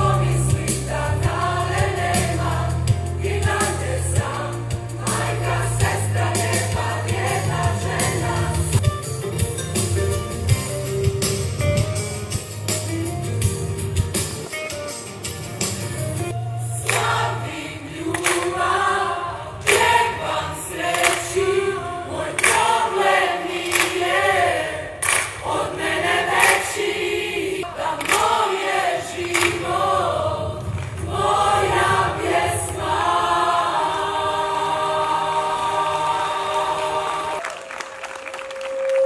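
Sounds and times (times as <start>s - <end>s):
choir singing: 0.0s - 8.8s, 16.6s - 37.5s.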